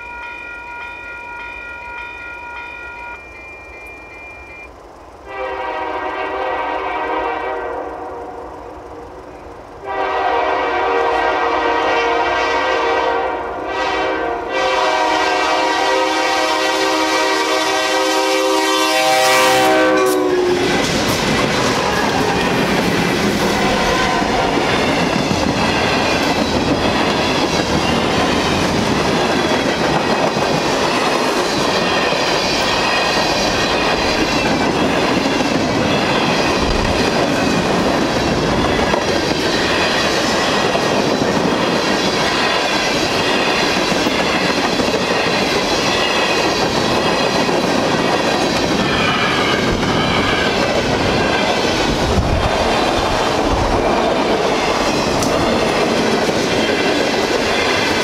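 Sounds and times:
train cars rumbling and clacking: 0:00.0 - 0:58.0
freight train horn: 0:05.2 - 0:28.4.

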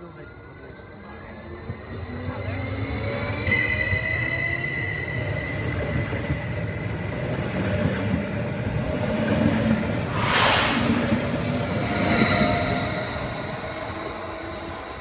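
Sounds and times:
short loud hiss: 0:10.1 - 0:11.0.

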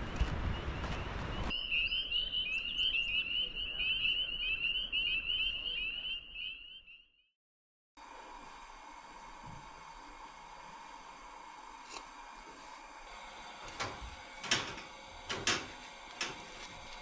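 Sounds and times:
frogs peeping chorus: 0:01.5 - 0:07.0.

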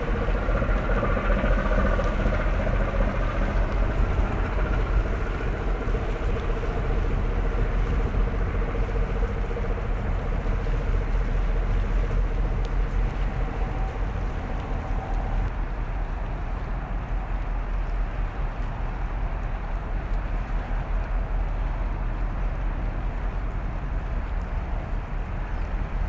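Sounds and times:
boat engine running: 0:00.0 - 0:17.3.

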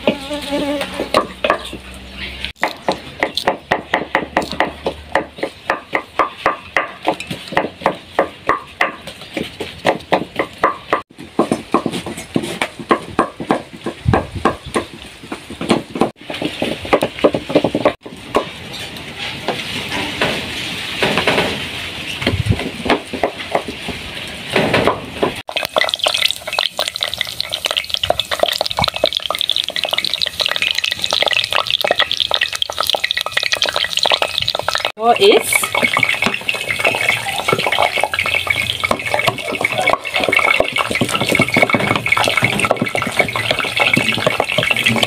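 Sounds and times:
oil poured over onions: 0:25.5 - 0:34.9
wooden stick knocking in metal pot: 0:25.5 - 0:45.0.

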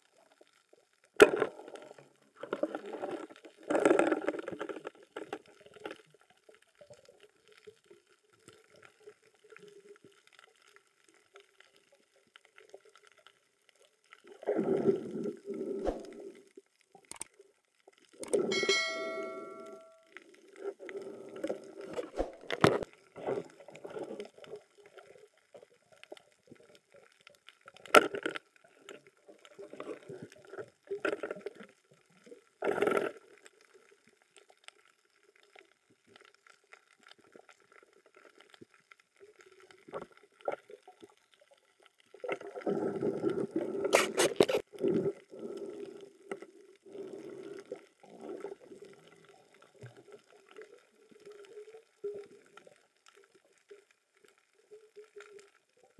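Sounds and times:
underwater gurgling and sloshing: 0:00.0 - 0:55.9.

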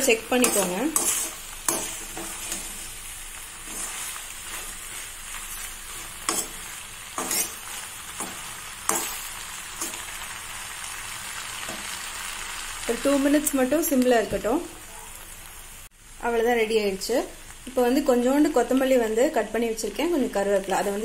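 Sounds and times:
food sizzling in a pan: 0:00.0 - 0:21.0
metal spoon scraping and knocking pan: 0:00.3 - 0:02.9, 0:05.9 - 0:10.0.

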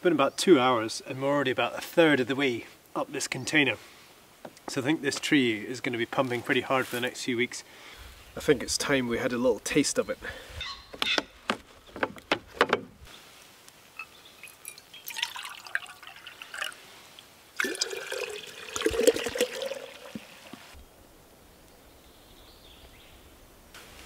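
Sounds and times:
liquid pouring into glass jar: 0:14.0 - 0:16.8, 0:17.6 - 0:20.8.

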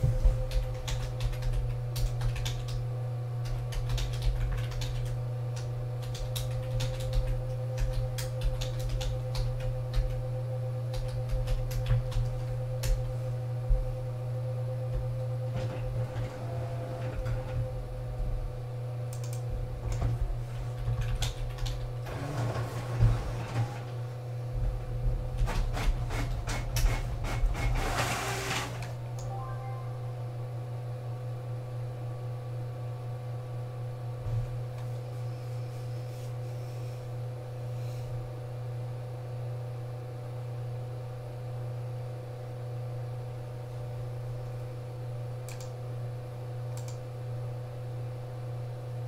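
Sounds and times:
low electrical hum: 0:00.0 - 0:49.0
keyboard typing: 0:00.4 - 0:02.8, 0:03.4 - 0:10.2, 0:20.7 - 0:21.9.

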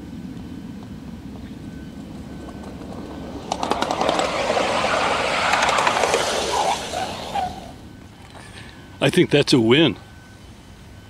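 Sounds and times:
wheels clicking over rail joints: 0:00.8 - 0:08.7
steel wheels rolling on rails: 0:01.3 - 0:07.8
wheel squeaks: 0:02.1 - 0:07.8.

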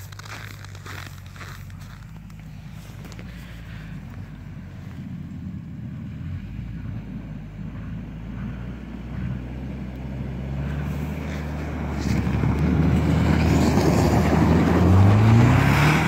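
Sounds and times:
car engine driving through snow: 0:00.0 - 0:16.0.

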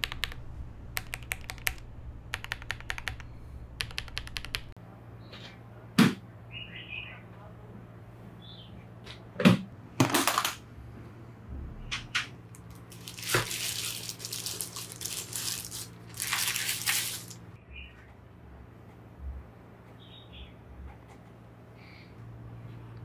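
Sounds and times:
thin plastic sheet crinkling: 0:12.6 - 0:17.6.

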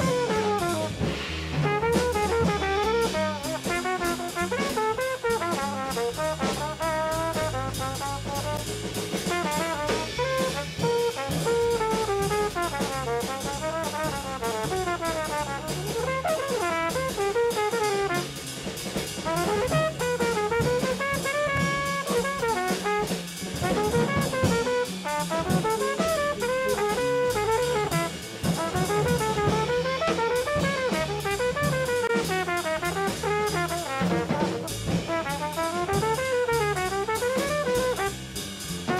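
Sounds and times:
congas: 0:00.0 - 0:00.4, 0:19.1 - 0:36.5
saxophone solo: 0:00.0 - 0:01.0, 0:01.7 - 0:08.6, 0:09.3 - 0:18.3, 0:19.2 - 0:38.1
bass: 0:00.0 - 0:38.9
drum kit: 0:00.0 - 0:38.9.

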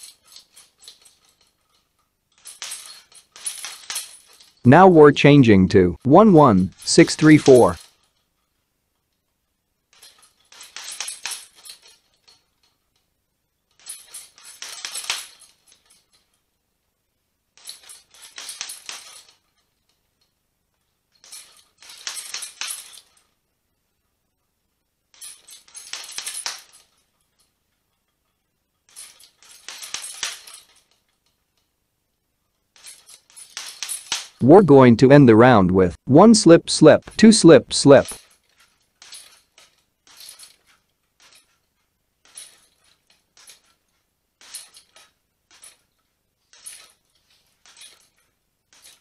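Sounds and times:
chain jingling: 0:00.0 - 0:04.6, 0:09.9 - 0:12.8, 0:13.7 - 0:16.4, 0:17.6 - 0:19.6, 0:21.1 - 0:23.4, 0:25.1 - 0:27.5, 0:28.8 - 0:31.2, 0:32.7 - 0:34.4, 0:38.0 - 0:49.0.

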